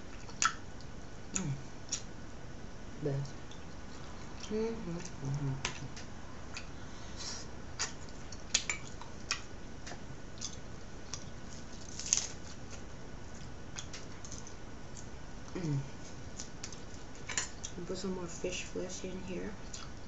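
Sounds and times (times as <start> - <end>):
mouth smacks and clicks eating: 0.1 - 2.1, 7.8 - 11.4, 19.7 - 20.0.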